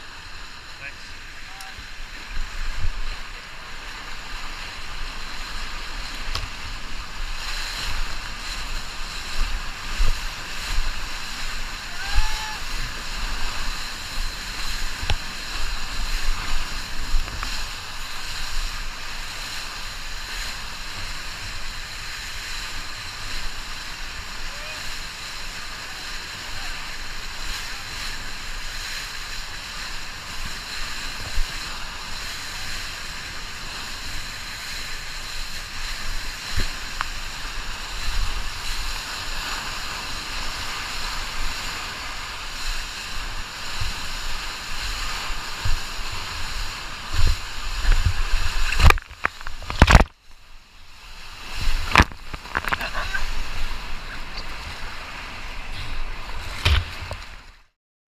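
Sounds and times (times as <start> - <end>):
whitewater rushing and splashing: 0.0 - 57.8
water slapping a board: 47.0 - 50.2, 51.6 - 53.2, 55.8 - 57.6.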